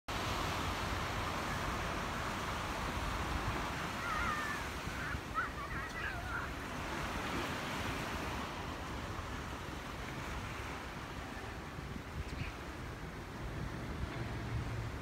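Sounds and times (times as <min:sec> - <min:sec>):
ocean waves breaking: 0:00.1 - 0:15.0
faint calls: 0:03.8 - 0:06.6.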